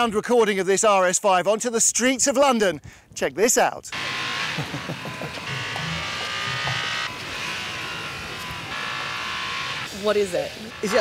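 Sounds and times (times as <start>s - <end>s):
car engine at high revs: 4.0s - 11.0s.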